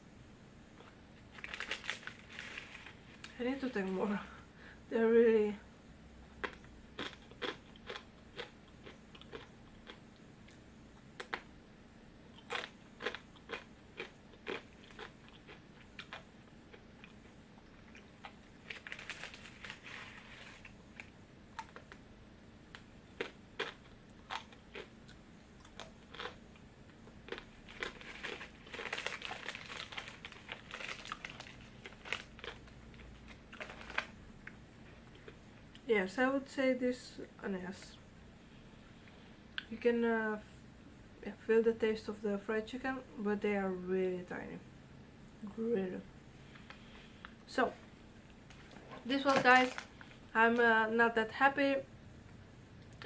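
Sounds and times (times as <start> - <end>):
foil packet rustling: 1.3 - 3.3, 18.6 - 20.8, 27.6 - 34.2, 48.5 - 50.6
chewing crisp snack sticks: 6.4 - 11.5, 12.3 - 20.8, 22.8 - 35.9.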